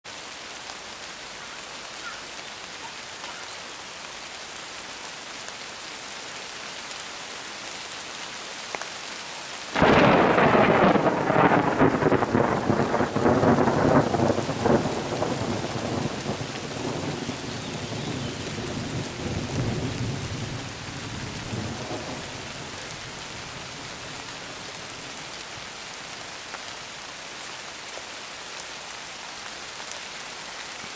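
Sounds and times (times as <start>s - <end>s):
steady rain: 0.0s - 30.9s
thunderclap crack and rumble: 9.8s - 17.2s.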